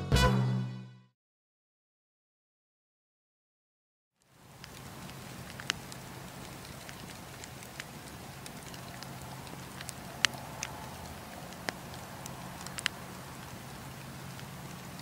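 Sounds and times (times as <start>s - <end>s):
campfire crackling and popping: 4.2s - 15.0s.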